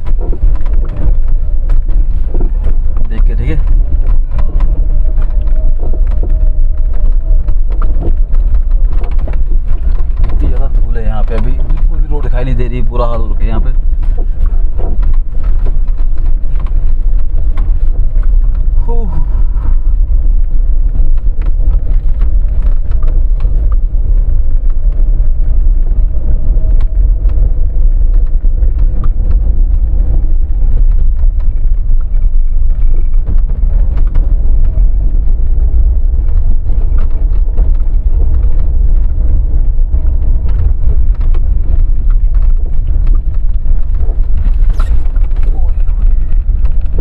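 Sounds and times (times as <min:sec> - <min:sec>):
car engine and tyres rumbling: 0:00.0 - 0:47.0
stones knocking and rattling: 0:00.0 - 0:47.0.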